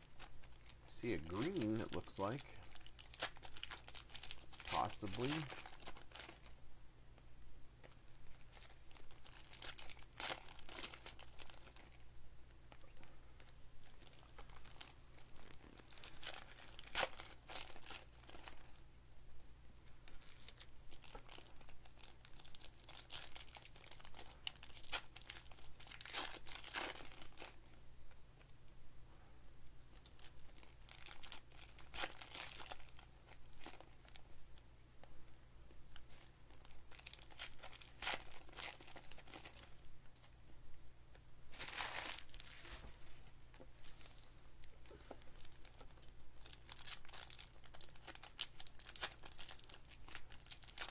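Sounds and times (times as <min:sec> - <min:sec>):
foil wrappers crinkling and tearing: 0:00.0 - 0:06.5, 0:08.3 - 0:12.0, 0:13.8 - 0:18.8, 0:20.1 - 0:27.6, 0:30.0 - 0:34.3, 0:36.0 - 0:39.8, 0:41.5 - 0:42.9, 0:44.8 - 0:50.9.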